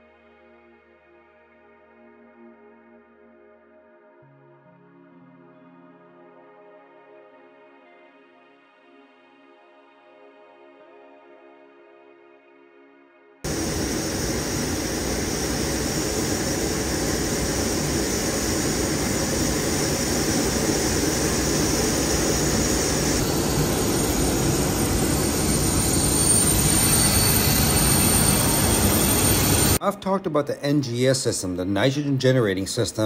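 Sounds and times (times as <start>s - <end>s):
jet turbine noise: 13.5s - 29.8s.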